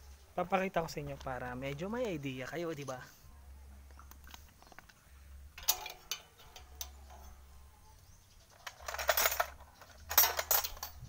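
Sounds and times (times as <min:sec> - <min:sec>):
wrenches clinking in metal toolbox: 0:05.6 - 0:07.4, 0:08.5 - 0:11.0.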